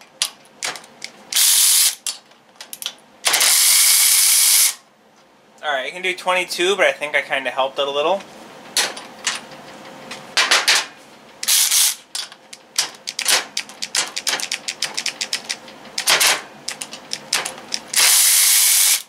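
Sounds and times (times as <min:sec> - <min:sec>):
electric ratchet motor running: 0:01.4 - 0:02.0, 0:03.4 - 0:04.8, 0:11.4 - 0:12.0, 0:17.9 - 0:19.0
ratchet clicking: 0:16.7 - 0:19.0.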